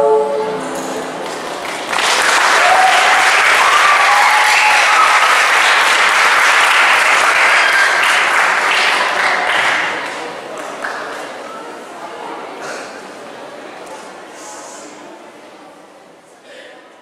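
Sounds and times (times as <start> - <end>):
audience applause: 1.1 - 11.2.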